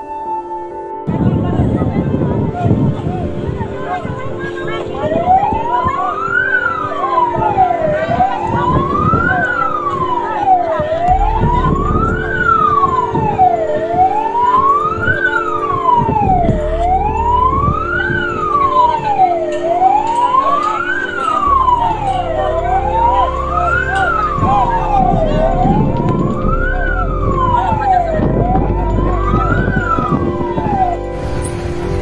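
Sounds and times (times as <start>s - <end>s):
emergency siren wailing: 0.0s - 32.0s
low rumble and hum: 11.0s - 14.2s, 16.1s - 19.0s, 21.5s - 32.0s.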